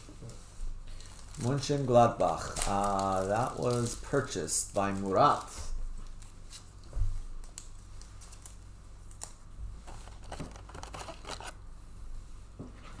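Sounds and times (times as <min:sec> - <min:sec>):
plastic sleeves rustling and crinkling: 0:00.0 - 0:11.6
steady low hum: 0:00.0 - 0:13.0.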